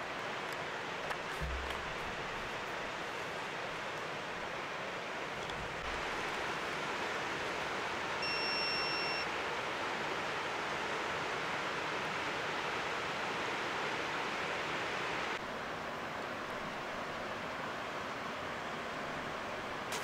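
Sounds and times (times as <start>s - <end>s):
steady rushing hiss: 0.0s - 8.2s
electronic beep: 8.2s - 9.3s.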